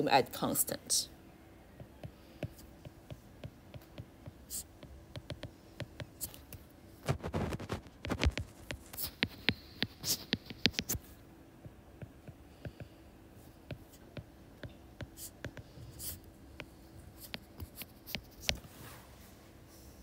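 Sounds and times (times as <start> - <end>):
stylus tapping and scratching screen: 1.8 - 18.7.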